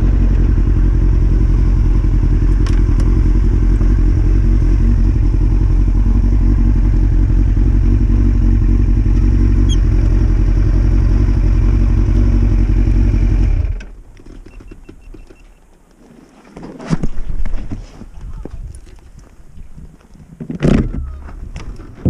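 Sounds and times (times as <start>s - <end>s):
motorcycle engine idling: 0.0s - 13.8s.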